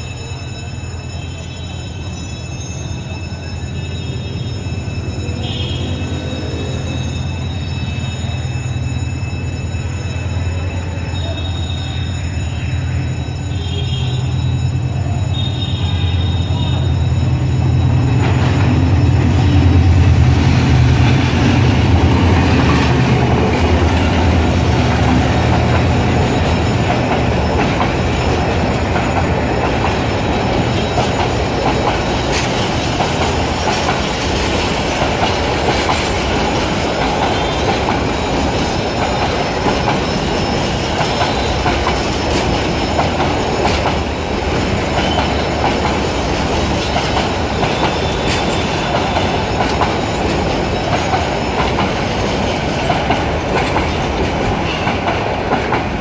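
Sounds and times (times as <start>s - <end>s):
diesel locomotive engine drone: 0.0s - 56.0s
train wheels clattering on rails: 15.4s - 56.0s.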